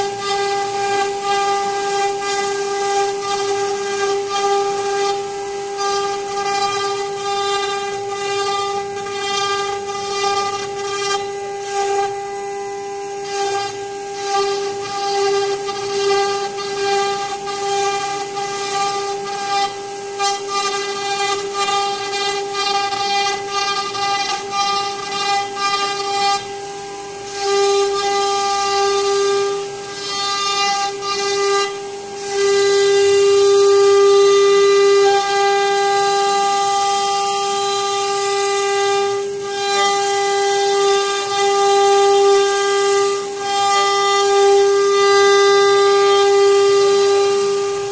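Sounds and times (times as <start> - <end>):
bit rasping through wood: 0.0 - 12.4, 13.2 - 26.5
router spindle whining: 0.0 - 47.9.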